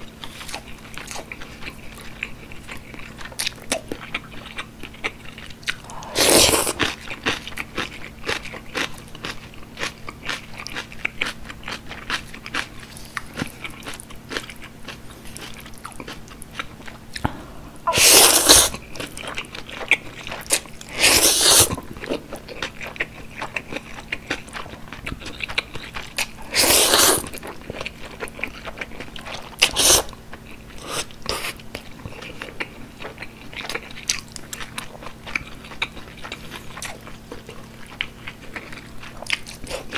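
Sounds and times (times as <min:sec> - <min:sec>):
wet chewing: 0:00.2 - 0:17.3, 0:17.9 - 0:39.9
slurping noodles: 0:05.9 - 0:07.0, 0:17.9 - 0:18.8, 0:20.9 - 0:21.8, 0:26.4 - 0:27.4, 0:29.6 - 0:30.1.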